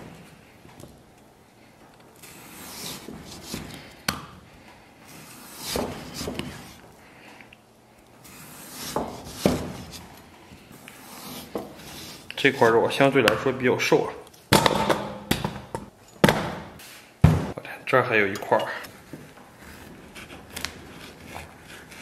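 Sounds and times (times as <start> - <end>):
cleaver rasping through meat: 2.2 - 4.1, 5.1 - 6.8, 8.2 - 10.2, 19.6 - 22.0.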